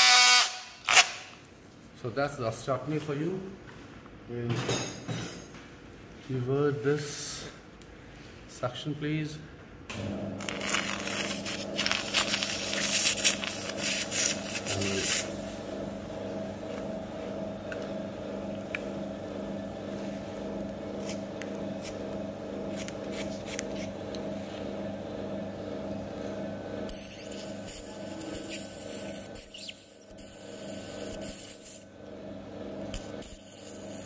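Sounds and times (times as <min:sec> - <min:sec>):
suction motor hum: 0:09.9 - 0:34.0.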